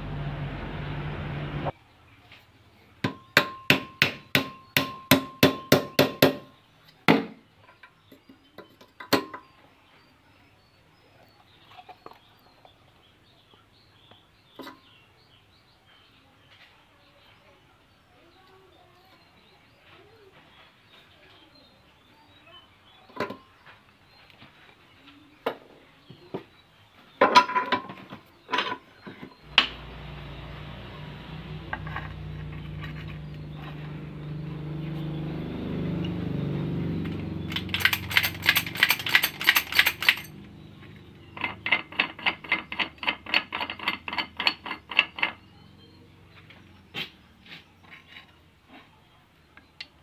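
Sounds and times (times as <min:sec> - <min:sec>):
low mechanical hum: 0:00.0 - 0:01.8, 0:29.2 - 0:43.9
sharp metal clicks: 0:37.0 - 0:40.6.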